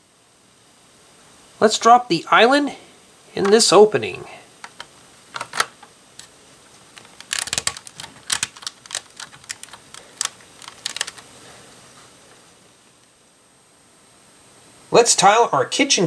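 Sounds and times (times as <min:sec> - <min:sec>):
plastic bricks clicking: 0:04.6 - 0:06.3, 0:06.9 - 0:11.3.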